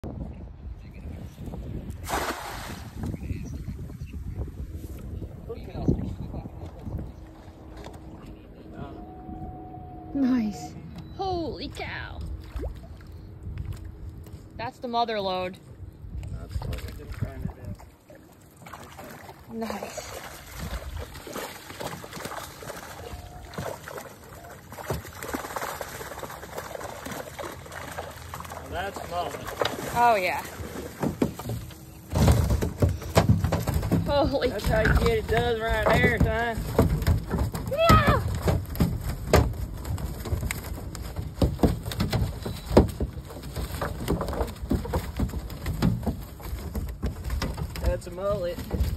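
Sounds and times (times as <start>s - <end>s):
fish thrashing at surface: 2.0s - 3.1s, 18.6s - 48.9s
water splashing and pouring: 2.0s - 3.2s, 18.3s - 41.2s.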